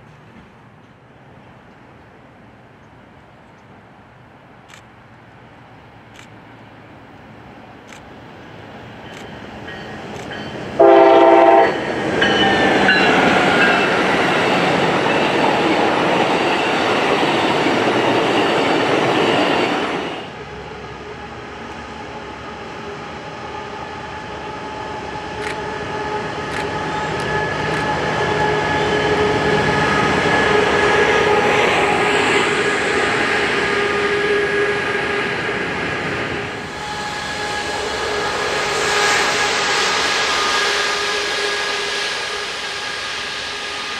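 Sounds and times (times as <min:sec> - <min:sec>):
train rumbling past: 0:00.0 - 0:43.9
train horn blast: 0:10.8 - 0:13.9, 0:23.4 - 0:31.5, 0:33.6 - 0:35.8, 0:36.4 - 0:39.2.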